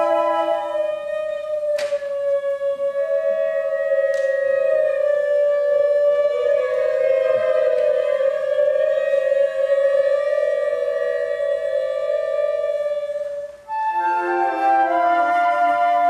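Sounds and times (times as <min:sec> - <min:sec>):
woodwinds holding long notes: 0:00.0 - 0:16.0.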